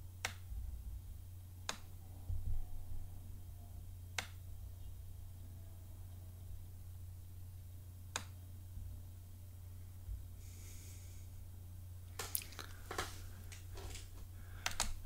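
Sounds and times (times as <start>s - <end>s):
steady low hum: 0.0s - 15.0s
faint hiss: 9.6s - 15.0s
small clicks: 12.1s - 15.0s.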